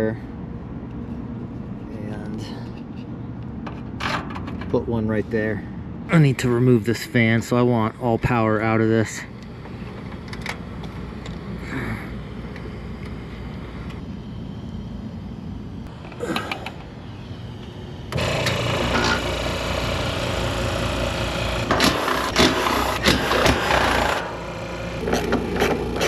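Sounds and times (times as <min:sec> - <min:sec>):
low hum: 0:00.1 - 0:26.0
recovery machine running: 0:07.4 - 0:26.0.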